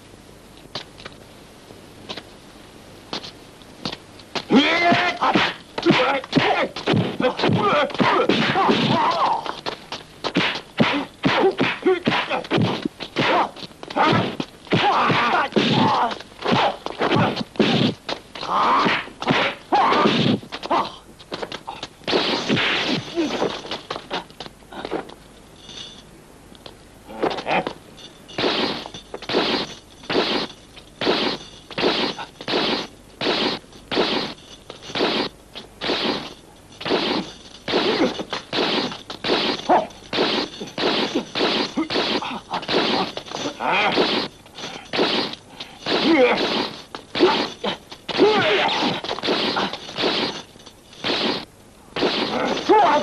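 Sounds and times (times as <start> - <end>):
short yells: 4.5 - 9.6, 13.2 - 17.4, 18.4 - 21.0, 47.2 - 49.0, 52.2 - 53.0
fighters shouting and grunting: 4.5 - 9.7, 10.8 - 17.8, 18.4 - 21.1, 39.4 - 44.3, 45.9 - 50.3, 52.0 - 53.0
punch and kick whacks: 4.8 - 9.6, 10.2 - 20.9, 22.1 - 23.3, 28.4 - 44.3, 44.9 - 50.4, 51.0 - 53.0.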